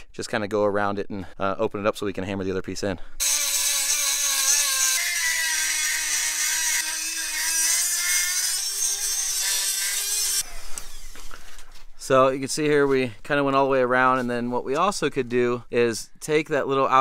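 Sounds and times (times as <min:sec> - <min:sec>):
rotary tool grinding metal: 0:03.2 - 0:11.4.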